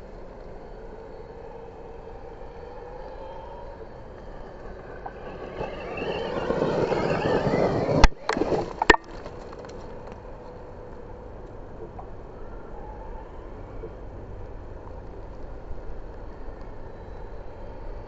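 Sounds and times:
electric motor whine: 0.0 - 8.9.

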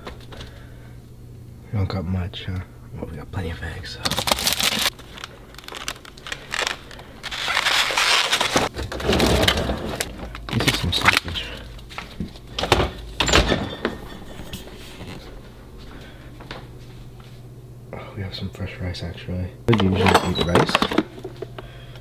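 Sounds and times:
packaging rustling: 4.0 - 12.8.

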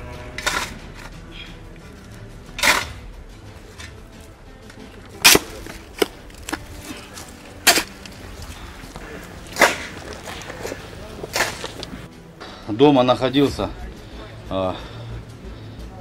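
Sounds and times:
shovel scraping earth: 0.0 - 4.3, 5.0 - 12.1
shovel striking rubble: 2.5 - 3.1, 5.1 - 12.0.

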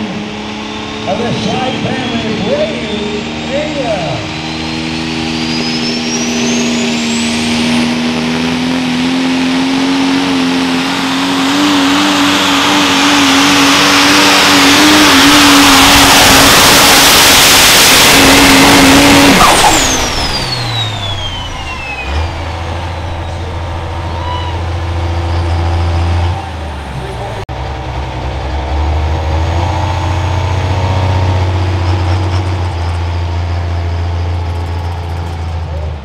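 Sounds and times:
diesel engine running flat out: 0.0 - 36.0
high turbo whistle: 0.5 - 8.9, 10.8 - 26.4.

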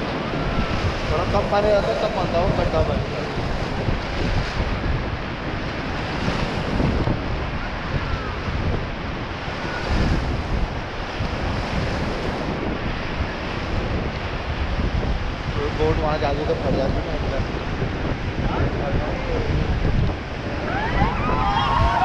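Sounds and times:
whitewater rapids rushing: 0.0 - 13.4, 20.2 - 22.0
wind buffeting microphone: 0.0 - 22.0.

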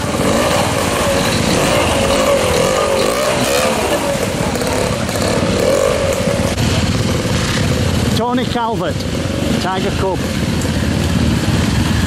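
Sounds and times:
stream rushing: 0.0 - 8.1
two-stroke motorcycle revving: 0.0 - 12.0.

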